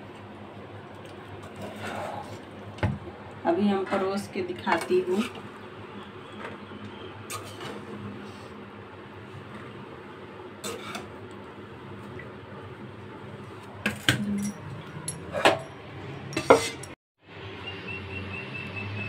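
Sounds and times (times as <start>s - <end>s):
spoon and plates clinking: 13.9s - 17.0s.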